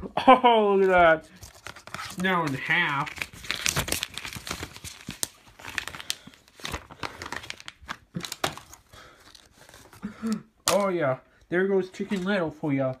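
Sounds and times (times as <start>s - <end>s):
plastic case crackling and snapping: 1.5s - 11.0s.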